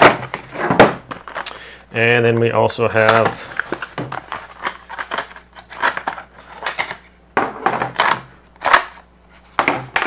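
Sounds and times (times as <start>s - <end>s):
cardboard rustling and scraping: 0.0s - 1.4s.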